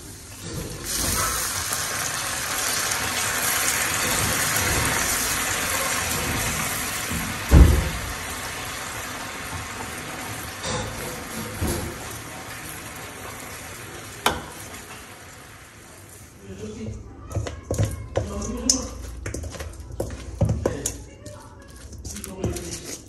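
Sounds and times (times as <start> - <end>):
water sizzling in hot pan: 0.0 - 16.6
sauce being stirred: 0.0 - 23.0.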